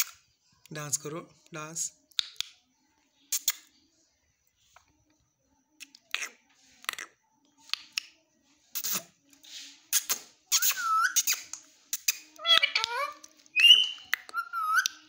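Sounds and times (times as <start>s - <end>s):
parakeet hissing and clicking: 3.3s - 3.6s, 8.7s - 15.0s.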